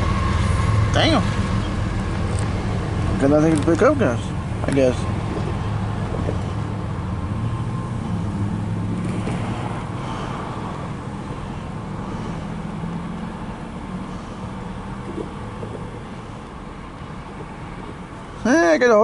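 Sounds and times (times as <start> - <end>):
engine rumble: 0.0 - 19.0.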